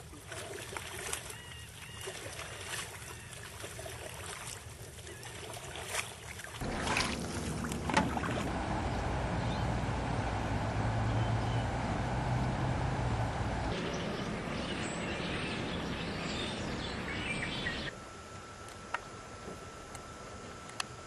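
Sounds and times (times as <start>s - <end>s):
paddle strokes and drips: 0.0s - 8.6s
low hum: 6.6s - 21.0s.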